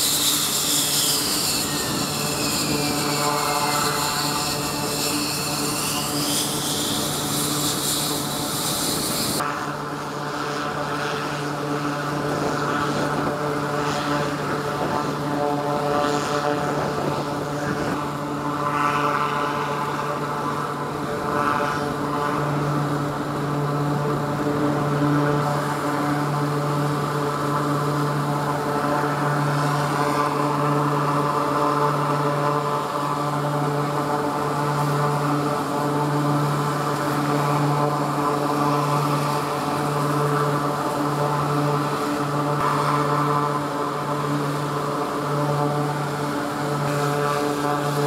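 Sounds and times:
jet turbine whine winding down: 0.0 - 15.3
steady low engine drone: 0.0 - 48.0.

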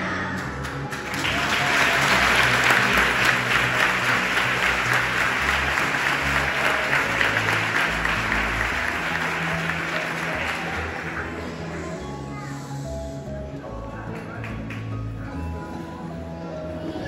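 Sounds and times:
low instrumental music: 0.0 - 17.0
congregation clapping: 0.4 - 11.4, 14.1 - 15.0.

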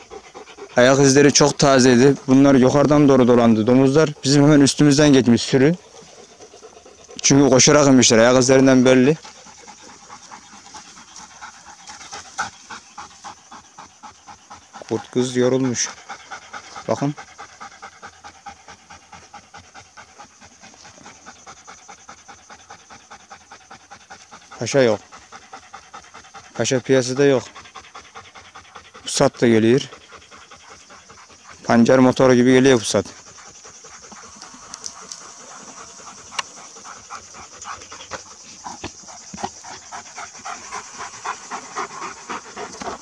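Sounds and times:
dog panting rapidly: 0.0 - 43.0.

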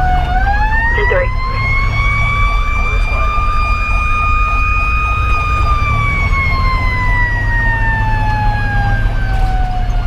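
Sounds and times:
diesel engine rumble: 0.0 - 10.0
electronic siren yelp: 0.0 - 10.0
mechanical siren wailing: 0.0 - 10.0.

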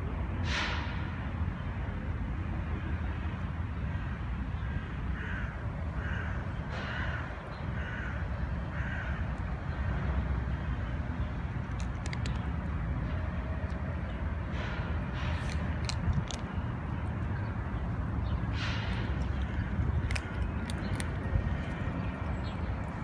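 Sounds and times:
bird cawing: 3.9 - 9.4
steady low rumble: 8.2 - 23.0.

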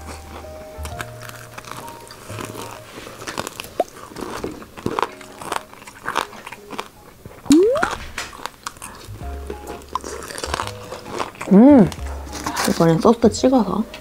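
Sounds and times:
fried chicken crunching when chewed: 0.0 - 13.1
short rising tone: 7.5 - 8.0.

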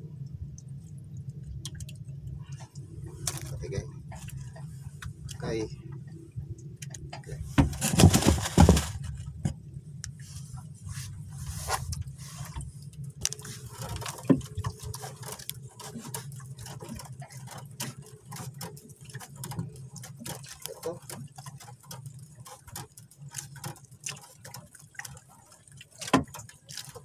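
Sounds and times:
low steady hum: 0.0 - 27.0
scraping rustle: 7.4 - 9.5
clicks and small knocks: 11.9 - 27.0.

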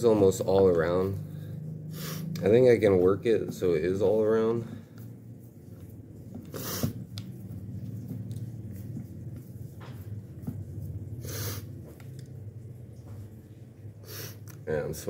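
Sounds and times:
hands working pie dough: 0.0 - 15.0
low steady hum: 0.0 - 15.0
sharp breaths through nose: 1.3 - 2.4, 6.5 - 7.0, 11.2 - 11.7, 14.0 - 14.5.

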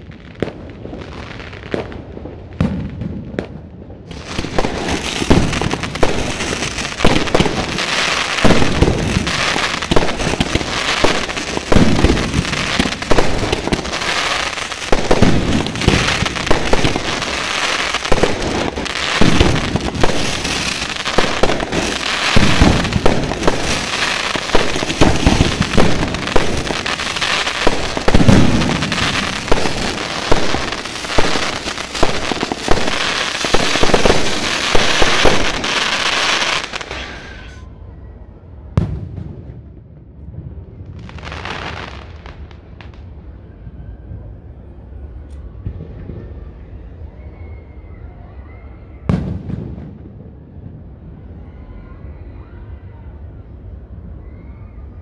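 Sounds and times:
hiss of burning fireworks: 0.0 - 37.6, 40.8 - 43.4
firework launch and burst bangs: 1.7 - 37.6.

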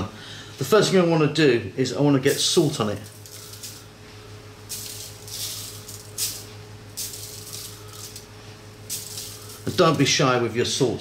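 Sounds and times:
salt grains pattering on foil: 2.2 - 4.0, 4.6 - 10.2.

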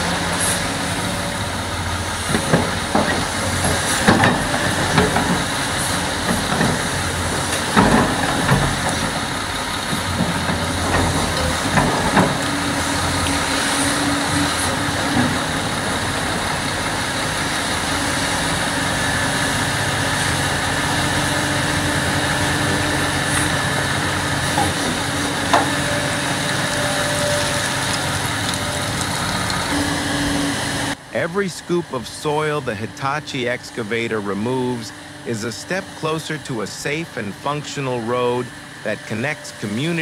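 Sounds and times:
excavator diesel engine: 0.0 - 40.0.

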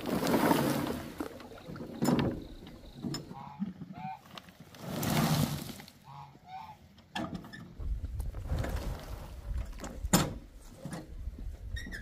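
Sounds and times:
rustling scrape: 0.0 - 1.4, 4.7 - 6.0, 8.2 - 9.6
farm fowl calls: 3.3 - 4.3, 6.0 - 6.9.

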